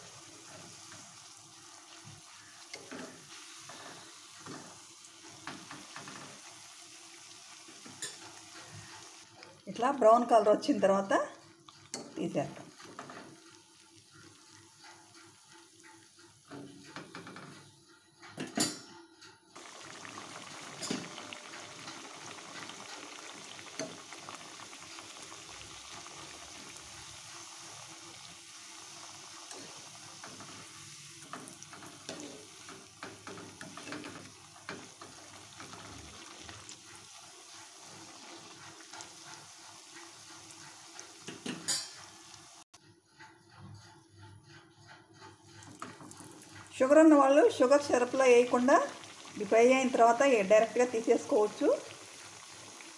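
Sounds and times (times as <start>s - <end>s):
hot oil sizzling: 0.0s - 10.9s, 11.5s - 17.8s, 19.6s - 42.8s, 44.8s - 52.9s
metal spoon clinking on pan: 41.4s - 42.1s.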